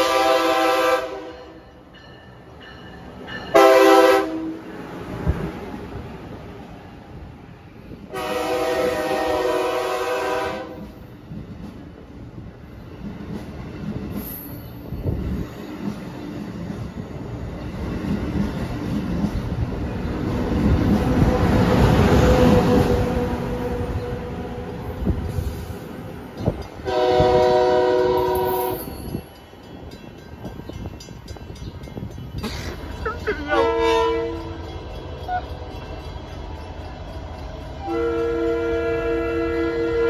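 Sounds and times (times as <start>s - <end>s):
train horn blasts: 0.0s - 1.7s, 3.5s - 4.7s, 8.1s - 11.0s, 26.8s - 29.1s, 33.4s - 35.5s, 37.8s - 40.0s
train wheels rushing past: 0.0s - 40.0s.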